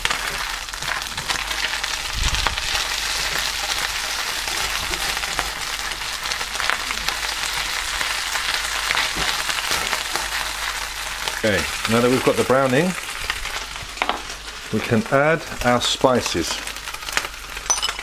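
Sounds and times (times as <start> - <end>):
meat sizzling in a skillet: 0.0 - 17.7.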